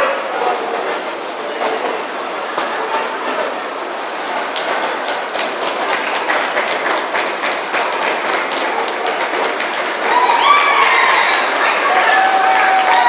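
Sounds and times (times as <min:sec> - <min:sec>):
crowd applauding: 0:04.3 - 0:13.0.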